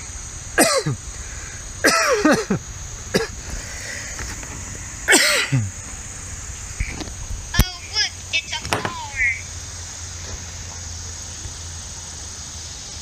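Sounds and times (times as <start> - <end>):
man's cough-like vocal sounds: 0.6 - 1.0, 1.8 - 3.4, 5.1 - 5.7.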